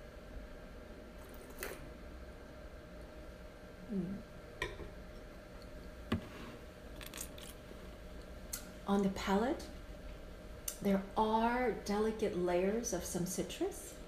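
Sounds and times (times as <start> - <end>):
person humming briefly: 3.8 - 4.3.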